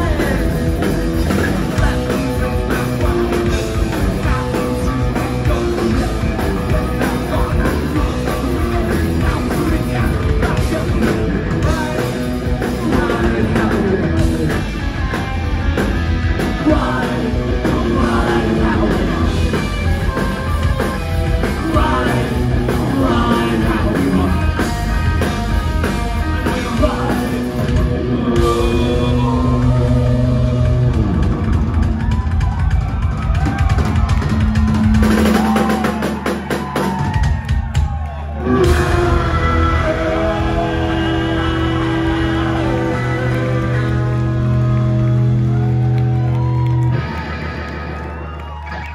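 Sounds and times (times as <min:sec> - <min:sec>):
bass: 0:00.0 - 0:48.9
drum kit: 0:00.0 - 0:48.9
electric guitar: 0:00.0 - 0:48.9
singer yelling into microphone: 0:38.5 - 0:43.7.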